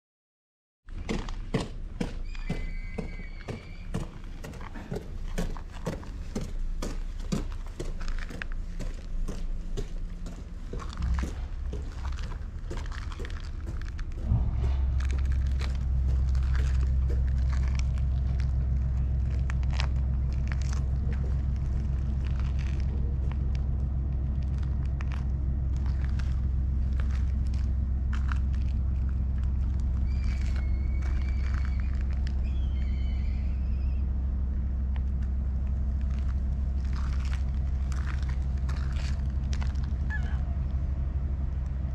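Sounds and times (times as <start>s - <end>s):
pulsing low rumble: 1.0s - 41.9s
short high whistled calls: 30.0s - 34.0s.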